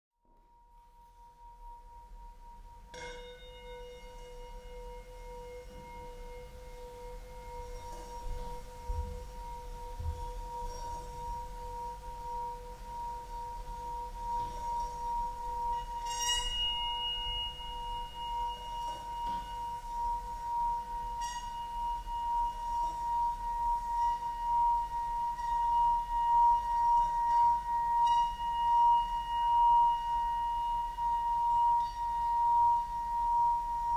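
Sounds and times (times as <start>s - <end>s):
metallic ringing tones: 0.4s - 33.9s
metal strikes: 2.9s - 6.4s.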